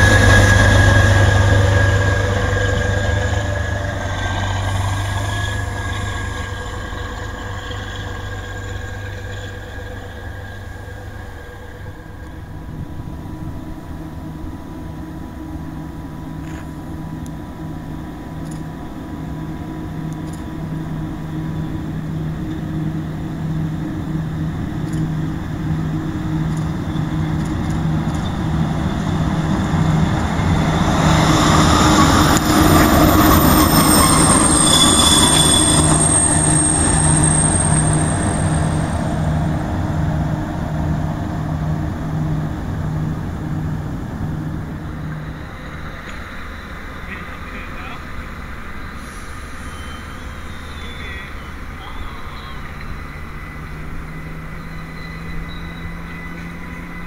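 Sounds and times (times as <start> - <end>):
electric locomotive pulsing hum: 0.0 - 57.0
wheel squeal: 30.8 - 39.6, 48.8 - 57.0.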